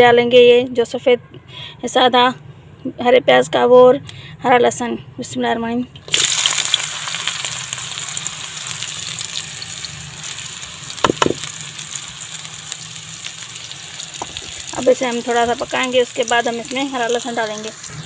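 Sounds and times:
onions sizzling in hot oil: 6.0 - 18.0
short knocks: 11.0 - 11.4.

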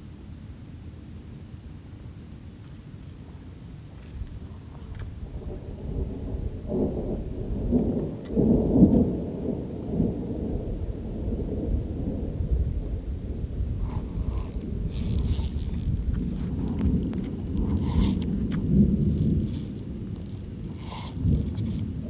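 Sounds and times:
wind buffeting microphone: 4.1 - 22.0
fishing reel whirring: 13.9 - 22.0.

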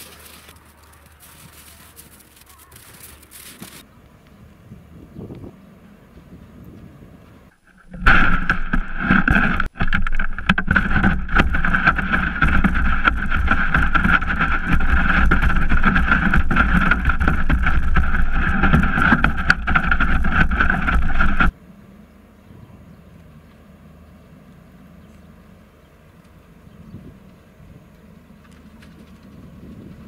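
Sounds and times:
sled scraping over snow: 0.0 - 3.8, 7.5 - 21.6
sled knocking on bumps: 7.6 - 21.6.

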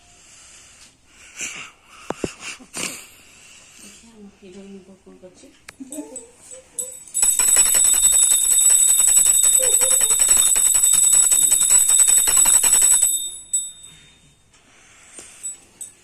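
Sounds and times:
metal bell ringing rapidly: 6.8 - 14.0.

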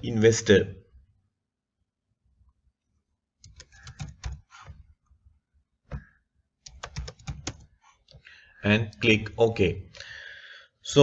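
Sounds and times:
keyboard typing: 3.4 - 5.0, 5.9 - 8.2.

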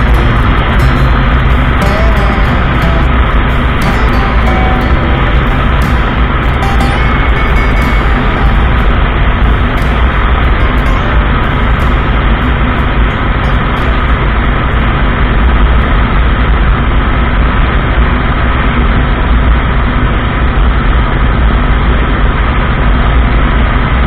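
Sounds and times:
motorcycle engine cruising: 0.0 - 18.1
wind rush on microphone: 0.0 - 24.0.

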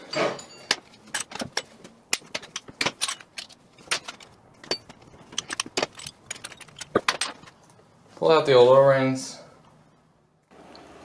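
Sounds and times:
small metal parts clinking: 0.1 - 7.8.

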